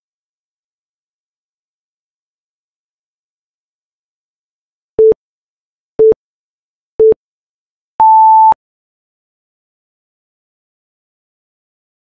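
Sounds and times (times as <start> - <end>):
long high timer beep: 8.0 - 8.6
short low timer beeps: 8.0 - 8.6.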